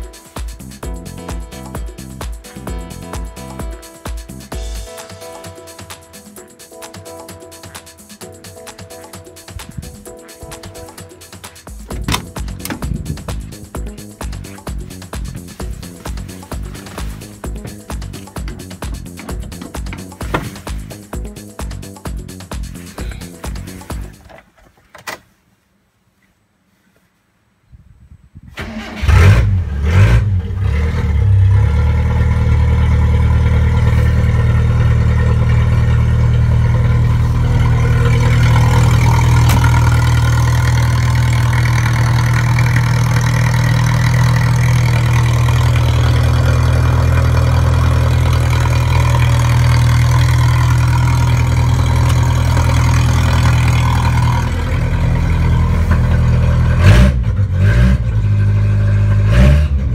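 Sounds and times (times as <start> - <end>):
engine starting and idling: 11.8 - 14.2, 28.5 - 59.9.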